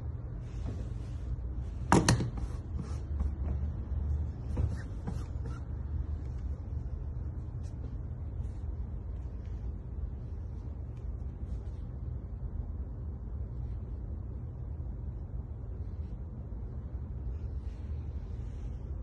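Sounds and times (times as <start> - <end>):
steady low hum: 0.0 - 19.0
cloth and tools handling: 0.4 - 12.0.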